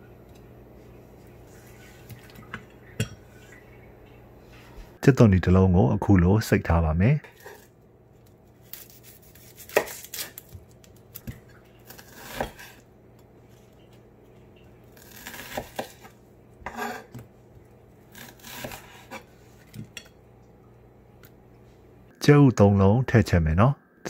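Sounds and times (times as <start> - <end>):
onion crunching and scraping: 8.5 - 12.8.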